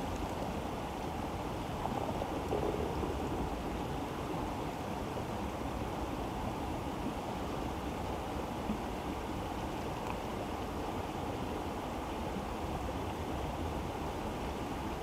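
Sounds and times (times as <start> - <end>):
low rushing noise: 1.7 - 7.2.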